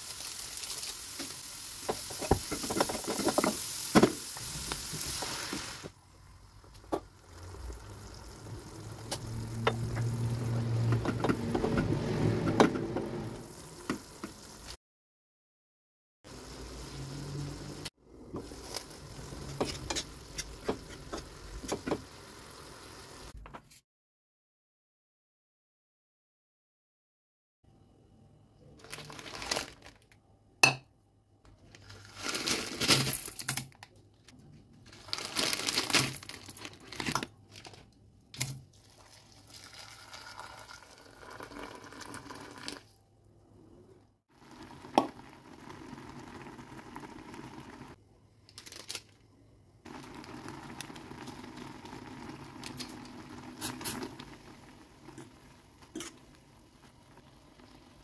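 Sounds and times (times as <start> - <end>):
plastic packets crinkling and tearing: 28.8 - 30.2, 31.7 - 33.8, 34.9 - 37.9, 48.5 - 49.2
water pouring into metal pot: 38.8 - 42.9.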